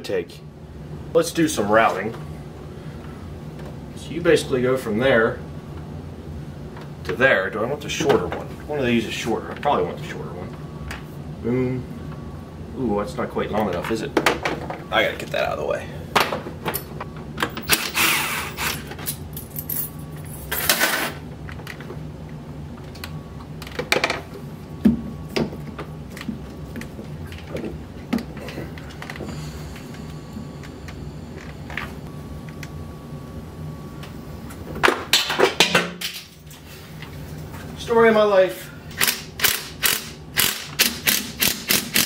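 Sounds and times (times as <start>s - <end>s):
steady low hum: 0.0s - 42.0s
cordless drill whirring: 17.8s - 18.8s.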